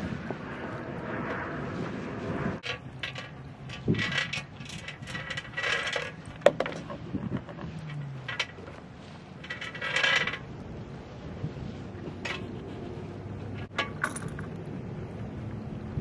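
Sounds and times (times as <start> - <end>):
wind on microphone: 0.0 - 13.7, 14.4 - 16.0.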